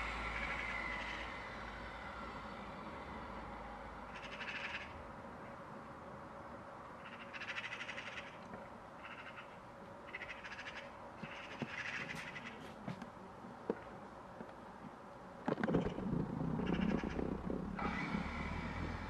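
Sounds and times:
magpies chattering: 4.1s - 5.0s, 16.6s - 17.6s.

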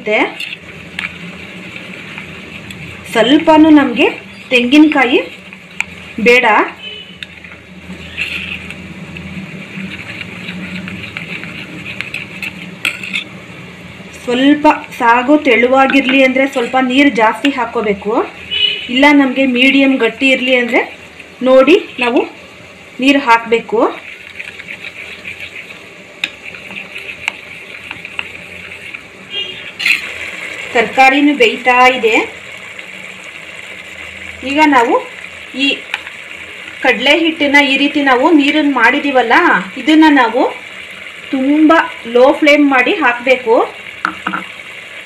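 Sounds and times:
spoon scraping steel bowl: 0.2s - 3.5s, 7.1s - 13.4s, 24.0s - 30.1s
spoon clinking on steel bowl: 12.4s - 13.3s.

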